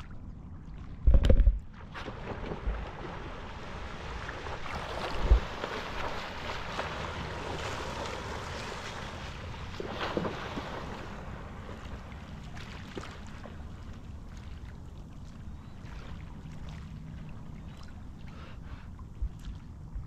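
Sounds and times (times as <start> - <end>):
water rumble: 0.0 - 20.0
splash: 1.7 - 14.7.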